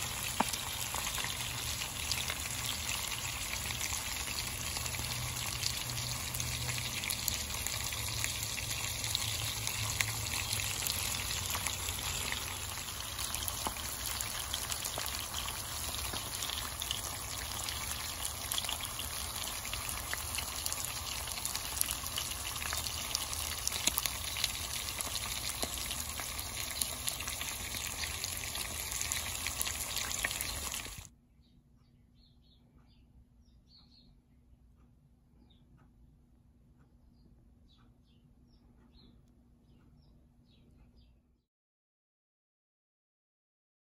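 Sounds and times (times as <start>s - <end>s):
fish sizzling in hot oil: 0.0s - 31.1s.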